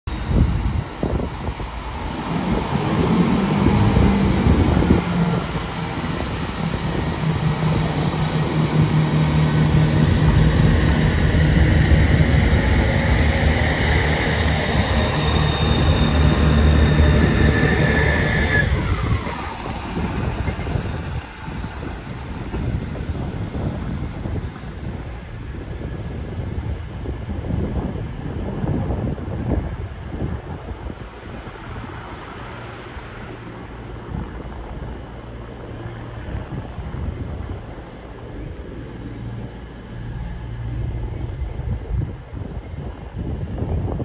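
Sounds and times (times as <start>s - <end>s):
high whine dropping in pitch: 0.1s - 26.5s
diesel train engines droning: 0.1s - 44.0s.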